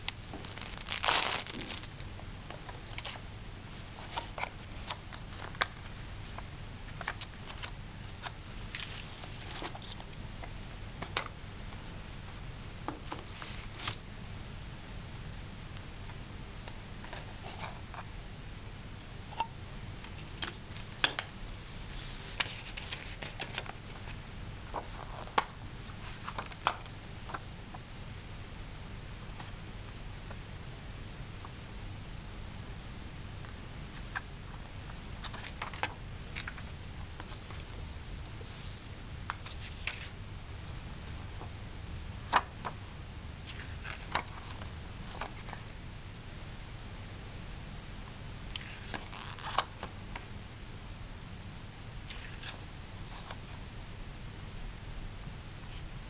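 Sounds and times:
paper booklet handling: 0:00.0 - 0:03.2, 0:06.9 - 0:10.1, 0:20.8 - 0:26.8, 0:35.2 - 0:40.2, 0:43.5 - 0:45.6
low steady hum: 0:00.0 - 0:56.0.

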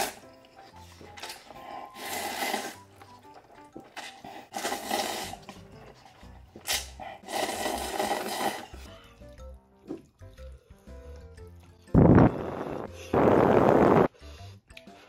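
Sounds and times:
background music: 0:00.0 - 0:15.0
person slurping noodles: 0:01.5 - 0:03.0, 0:04.0 - 0:08.9.

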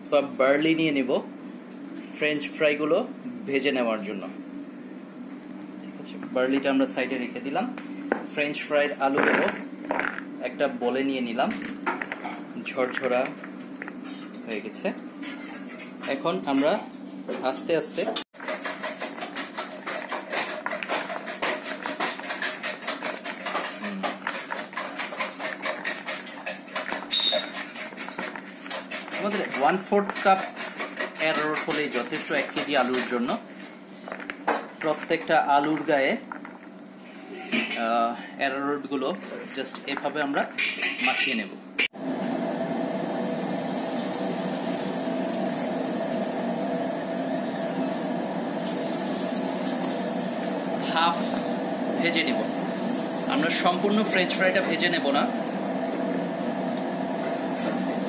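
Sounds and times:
potato strips sizzling in oil: 0:43.2 - 0:46.2, 0:48.6 - 0:50.7.

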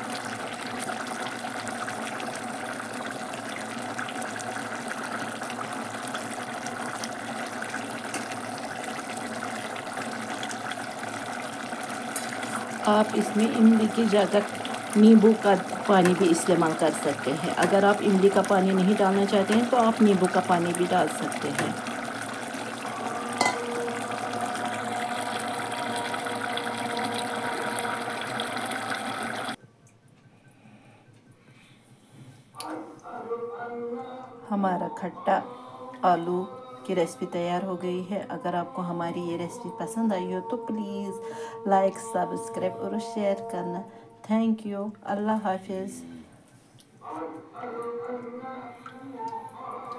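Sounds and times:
curry bubbling: 0:00.0 - 0:29.6
metal ladle stirring: 0:23.3 - 0:23.9.

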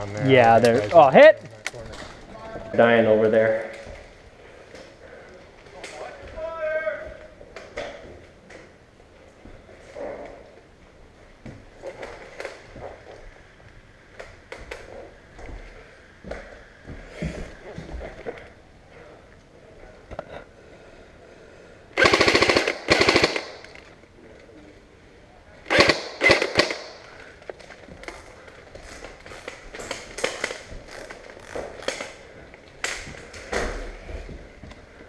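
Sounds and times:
sharp airsoft shots: 0:22.0 - 0:23.7, 0:25.7 - 0:27.0
airsoft rifle full-auto bursts: 0:22.0 - 0:23.8, 0:25.7 - 0:27.0.

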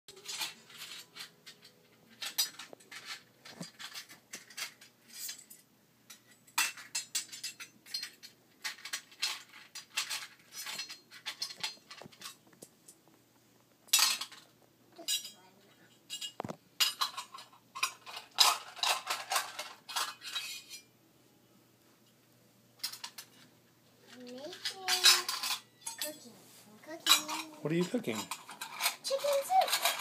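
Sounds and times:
metal toy pots clinking: 0:00.1 - 0:12.4, 0:13.9 - 0:14.4, 0:15.0 - 0:20.9, 0:24.1 - 0:26.3, 0:27.0 - 0:30.0.

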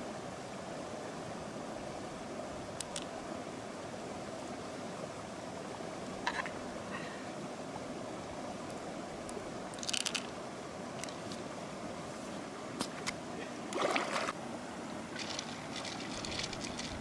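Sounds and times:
river water flowing: 0:00.0 - 0:17.0
mussel shells clicking and scraping: 0:02.8 - 0:03.1, 0:09.7 - 0:10.4, 0:15.2 - 0:17.0.

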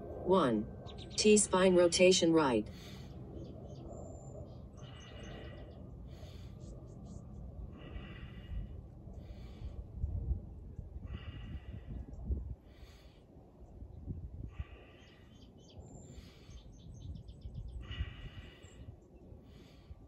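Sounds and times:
wind rumble on microphone: 0:00.0 - 0:20.0
person breathing out hard: 0:07.7 - 0:10.1.

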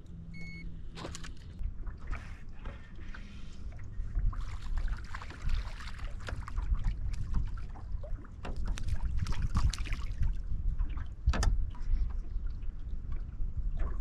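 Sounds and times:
water slapping against boat hull: 0:01.0 - 0:14.0
wind buffeting microphone: 0:03.8 - 0:14.0.

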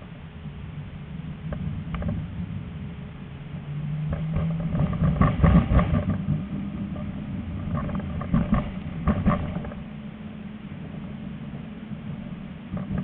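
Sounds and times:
tram rumbling along track: 0:00.0 - 0:13.0
wheels clattering over rail joints: 0:04.0 - 0:13.0.

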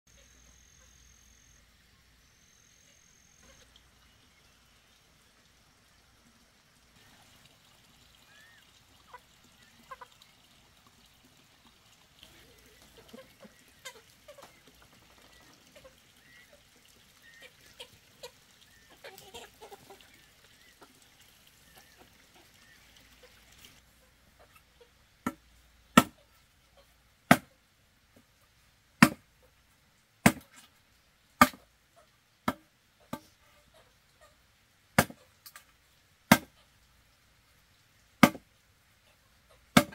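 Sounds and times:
faint poultry calls: 0:00.1 - 0:05.2, 0:07.0 - 0:11.4, 0:12.0 - 0:25.0.

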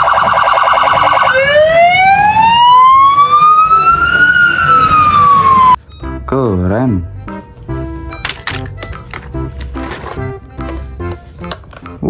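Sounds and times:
police siren: 0:00.0 - 0:05.8.

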